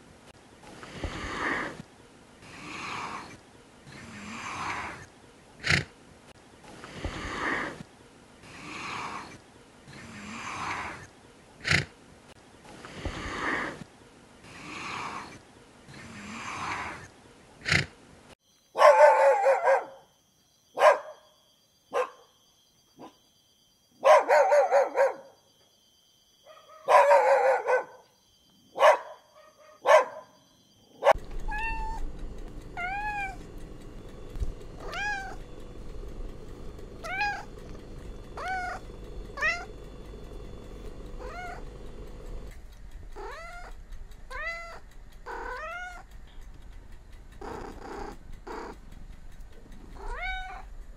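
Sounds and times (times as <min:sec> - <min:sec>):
giraffe breathy noises: 0:00.7 - 0:01.8, 0:06.8 - 0:07.8
small dog calls: 0:18.8 - 0:20.0, 0:31.0 - 0:33.5, 0:34.7 - 0:35.6, 0:36.8 - 0:40.0, 0:41.1 - 0:42.5, 0:43.2 - 0:46.1, 0:47.4 - 0:48.8, 0:49.9 - 0:50.7
steady low hum: 0:31.0 - 0:50.9
cat meowing: 0:31.3 - 0:32.1, 0:32.8 - 0:33.4, 0:34.8 - 0:35.4, 0:37.0 - 0:37.5, 0:38.4 - 0:38.8, 0:39.4 - 0:39.7, 0:41.2 - 0:41.6, 0:43.2 - 0:43.7, 0:44.3 - 0:46.0, 0:50.0 - 0:50.7.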